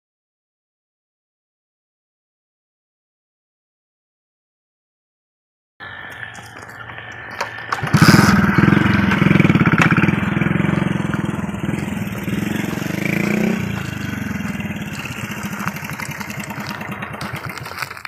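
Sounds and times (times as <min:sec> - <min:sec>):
small engine running: 0:05.8 - 0:18.0.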